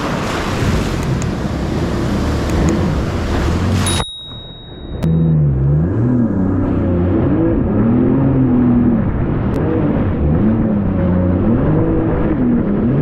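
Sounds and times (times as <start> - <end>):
rush of wind and spray: 0.0 - 4.0
jet ski engine: 0.0 - 13.0.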